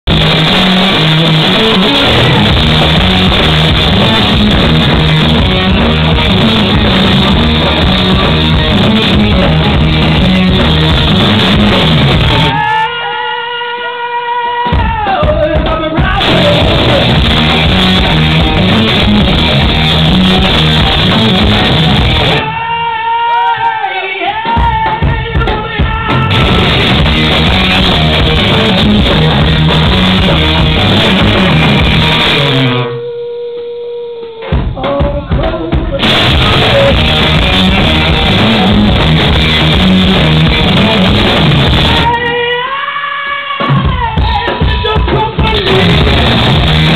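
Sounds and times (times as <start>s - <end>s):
bass guitar: 0.0s - 12.8s, 14.7s - 22.7s, 24.5s - 42.4s, 43.6s - 46.9s
electric guitar: 0.0s - 13.9s, 15.6s - 22.7s, 24.4s - 42.7s, 43.6s - 46.9s
rock band playing live: 0.0s - 33.4s, 34.2s - 42.8s, 43.4s - 46.9s
drum hits: 0.1s - 12.6s, 14.7s - 22.5s, 24.4s - 32.6s, 34.4s - 42.2s, 43.6s - 46.9s.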